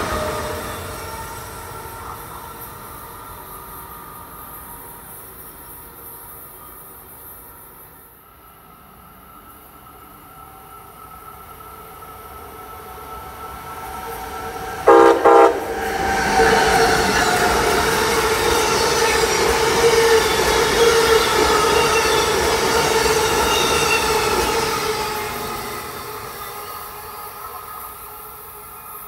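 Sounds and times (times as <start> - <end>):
train rail and wheel noise: 0.0 - 29.0
train horn blasts: 14.8 - 16.5.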